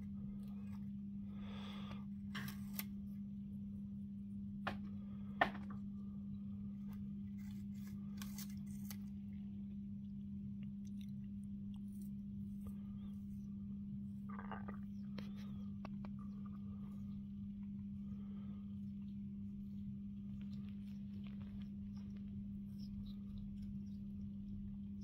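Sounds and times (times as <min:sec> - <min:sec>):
steady low hum: 0:00.0 - 0:25.0
parrot crunching apple: 0:07.4 - 0:09.2.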